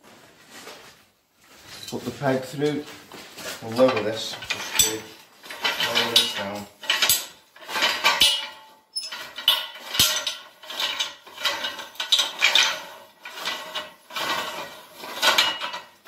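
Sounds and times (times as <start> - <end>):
metal tube scraping and clinking: 3.6 - 16.0.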